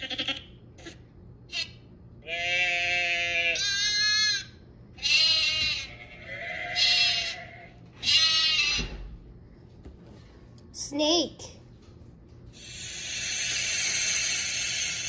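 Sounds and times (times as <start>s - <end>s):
sheep bleating: 0.0s - 0.5s, 2.2s - 8.9s.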